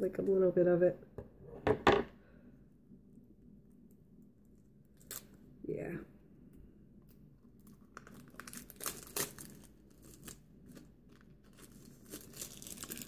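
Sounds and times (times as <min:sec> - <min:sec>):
plastic shrink-wrap tearing and crinkling: 0:05.0 - 0:05.4, 0:07.6 - 0:13.0.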